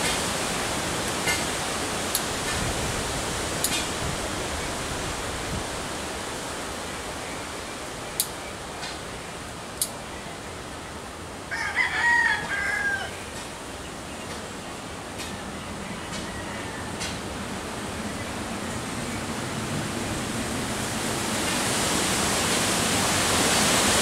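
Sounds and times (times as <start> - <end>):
rooster crowing: 11.5 - 13.2, 16.1 - 17.2.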